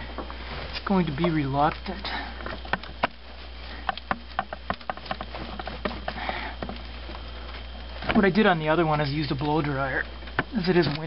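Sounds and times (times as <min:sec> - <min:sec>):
hands twisting rubber hose: 0:00.0 - 0:08.3
person breathing: 0:02.0 - 0:02.6, 0:03.6 - 0:04.1, 0:06.0 - 0:06.8.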